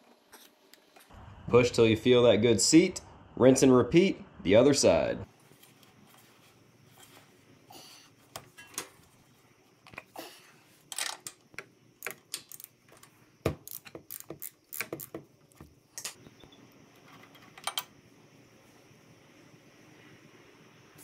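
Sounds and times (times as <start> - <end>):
hand ratchet clicking: 13.6 - 15.2.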